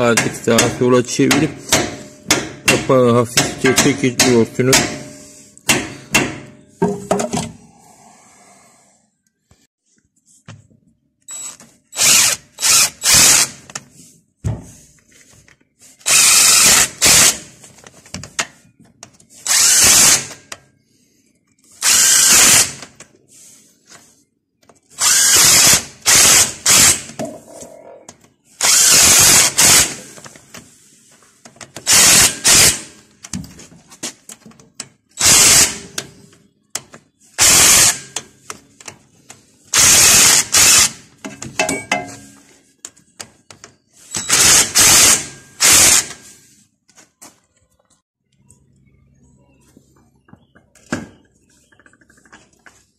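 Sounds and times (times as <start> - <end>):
cordless drill driving bolts: 11.3 - 13.6, 16.0 - 17.4, 19.4 - 20.4, 21.8 - 22.9, 25.0 - 27.2, 28.6 - 30.0, 31.8 - 32.8, 35.2 - 36.0, 37.4 - 38.0, 39.7 - 41.0, 44.1 - 46.2.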